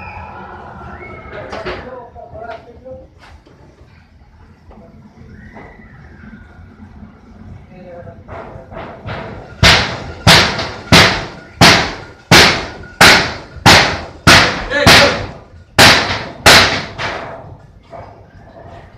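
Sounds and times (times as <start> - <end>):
loud sharp bangs: 8.3 - 17.6.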